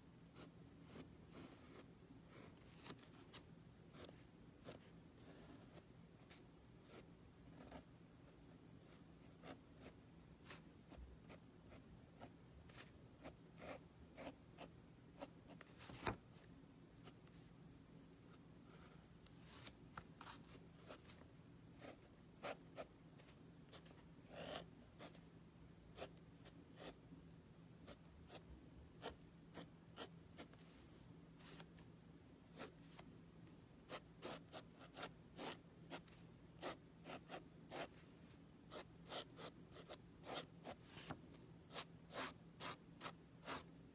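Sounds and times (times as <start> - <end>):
faint low hum: 0.0 - 43.9
drawing tool scratching on paper: 38.7 - 43.7.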